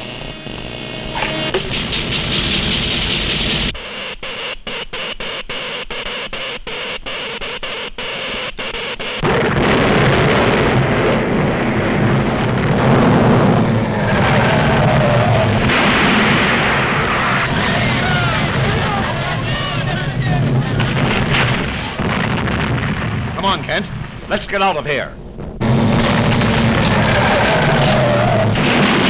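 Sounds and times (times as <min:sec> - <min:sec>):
electrical crackling and buzzing: 0:00.0 - 0:29.0
earthquake rumble: 0:09.2 - 0:29.0.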